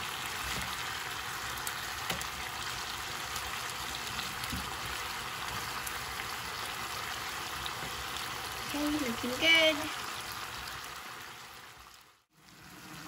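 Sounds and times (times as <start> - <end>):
chicken sizzling in a pan: 0.0 - 13.0.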